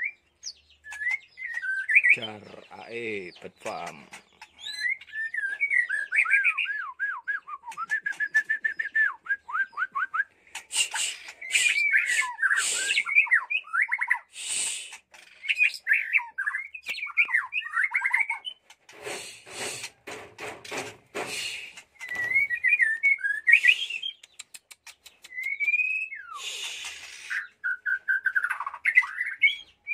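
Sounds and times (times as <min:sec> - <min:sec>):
bird singing whistled notes: 0:00.0 - 0:02.5, 0:04.6 - 0:14.8, 0:15.4 - 0:18.6, 0:22.0 - 0:24.5, 0:25.2 - 0:29.9
harsh scratchy bird notes: 0:10.5 - 0:13.1, 0:18.6 - 0:25.3, 0:26.4 - 0:27.6.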